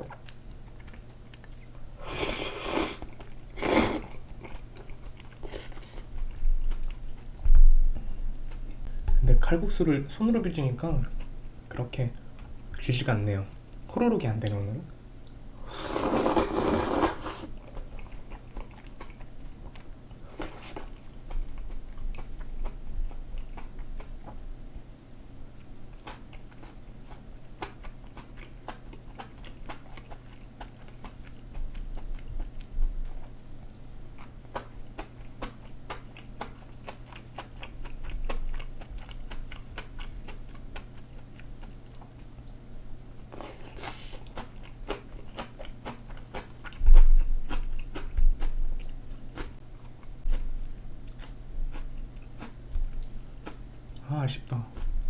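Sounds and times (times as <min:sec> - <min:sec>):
wet chewing clicks: 0:00.1 - 0:01.8, 0:06.1 - 0:07.3, 0:17.6 - 0:24.4, 0:25.6 - 0:42.6, 0:43.4 - 0:54.0
noodle slurp: 0:02.0 - 0:04.1, 0:15.7 - 0:17.5.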